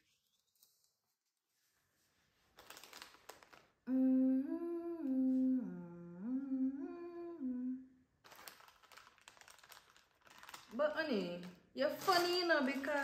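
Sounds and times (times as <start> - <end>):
person humming a tune: 3.9 - 8.0.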